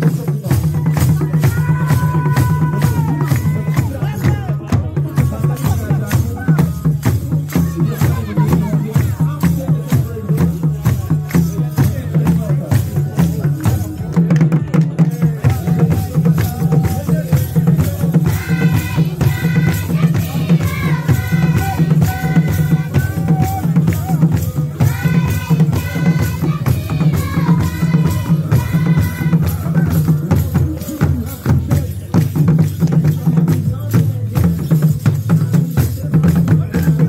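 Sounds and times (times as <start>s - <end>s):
drums beating fast rhythm: 0.0s - 37.0s
high voices singing: 15.2s - 32.2s.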